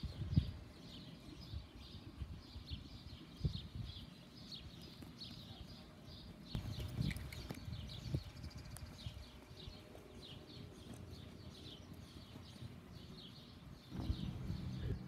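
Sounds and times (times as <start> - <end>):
birds chirping: 0.0 - 15.0
hooves thudding on sand: 3.2 - 15.0.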